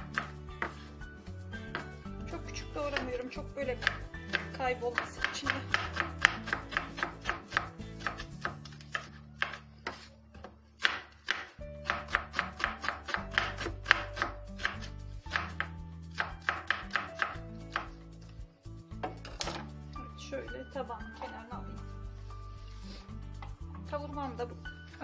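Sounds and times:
background music: 0.0s - 25.0s
knife slicing on wooden board: 5.2s - 10.1s.

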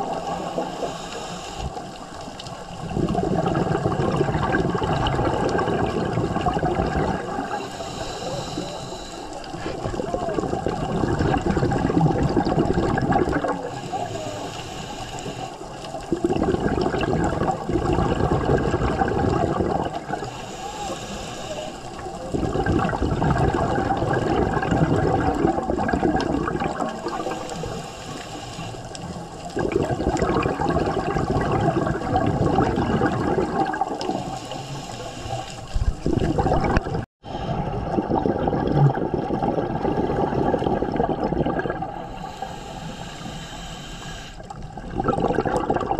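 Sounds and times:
exhaled bubbles rushing: 0.0s - 14.2s, 15.2s - 21.2s, 21.8s - 27.9s, 28.9s - 42.5s, 44.4s - 45.9s
regulator inhalation hiss: 0.1s - 2.1s, 7.5s - 9.9s, 13.6s - 16.0s, 20.2s - 22.3s, 27.1s - 29.5s, 34.0s - 35.9s, 42.0s - 44.5s.

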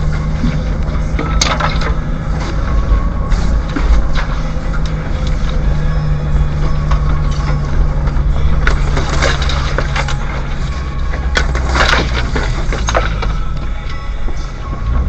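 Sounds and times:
scratchy scrapes and knocks: 0.0s - 13.8s
vehicle engine droning: 0.0s - 15.0s.

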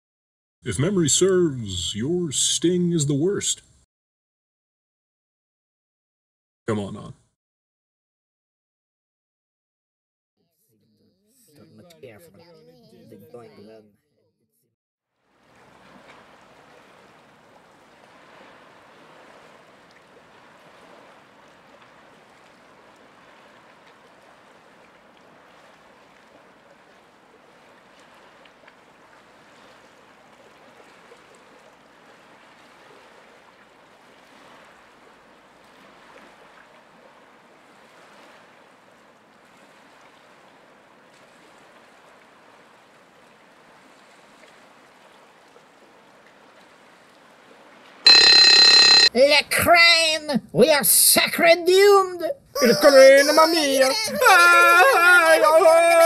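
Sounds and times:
flowing river water: 15.2s - 49.3s, 51.7s - 56.0s.

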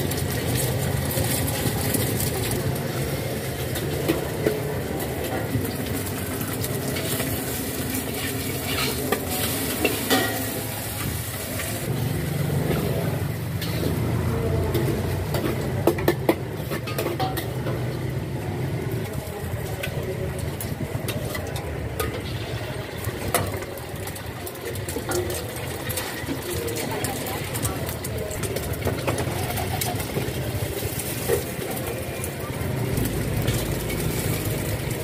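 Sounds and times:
food sizzling in wok: 0.0s - 35.0s
metal spatula scraping wok: 0.1s - 11.9s, 12.7s - 17.9s.

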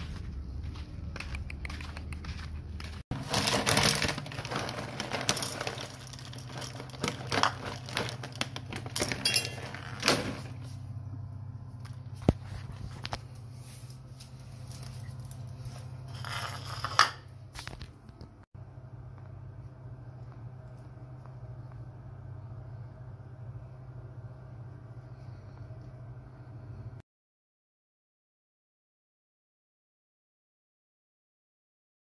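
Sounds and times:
steady low hum: 0.0s - 27.0s
packaging crinkling and rustling: 2.3s - 10.7s.

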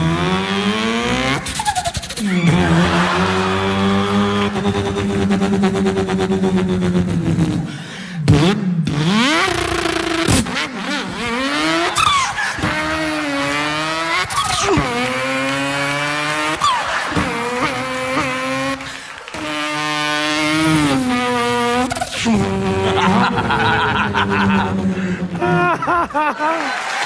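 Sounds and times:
man imitating engine revving: 0.0s - 26.7s.

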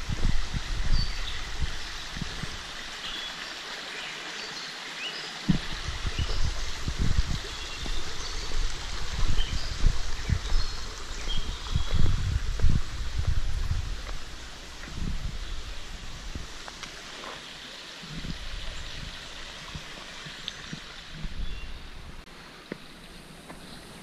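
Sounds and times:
creek flowing and trickling: 0.0s - 24.0s
low thumps: 5.5s - 8.0s.

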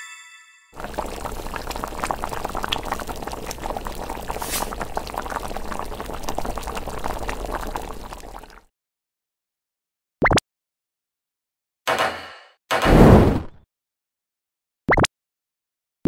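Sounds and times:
broth boiling and popping: 0.8s - 8.7s.

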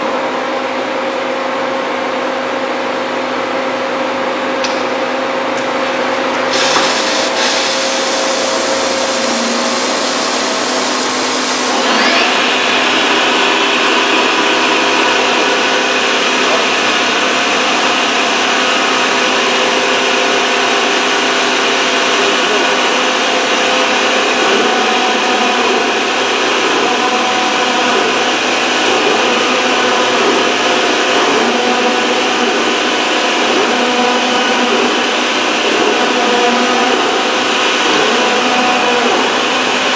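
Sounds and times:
drilling machine whir: 6.3s - 39.9s
coolant spraying hiss: 6.5s - 11.8s.

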